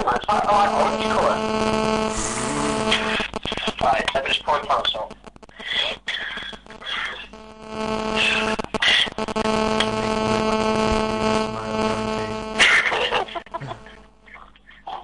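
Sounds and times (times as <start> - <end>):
steady buzzing hum: 0.4 - 3.4, 6.6 - 14.3.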